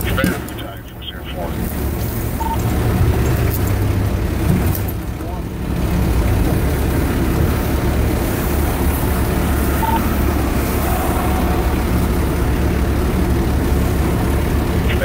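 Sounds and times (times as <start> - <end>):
truck engine rumbling: 0.0 - 15.0
faint beep: 2.4 - 2.6, 9.7 - 10.2.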